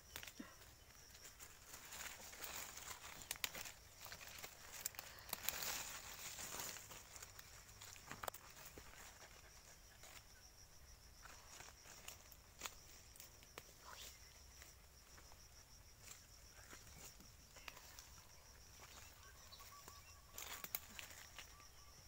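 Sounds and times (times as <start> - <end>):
soft crackles: 0.0 - 10.3
footsteps on dry leaves: 1.4 - 9.2.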